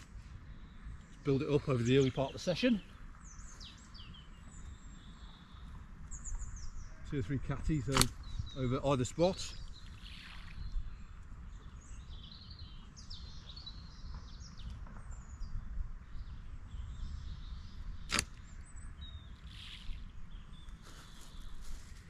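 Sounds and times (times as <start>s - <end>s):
small birds chirping: 0.0s - 22.0s
catapult snap: 7.9s - 8.2s, 18.1s - 18.4s.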